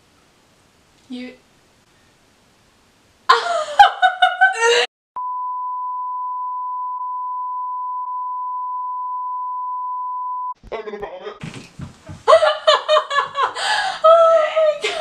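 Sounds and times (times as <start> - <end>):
high-pitched censor bleep: 5.2 - 10.6.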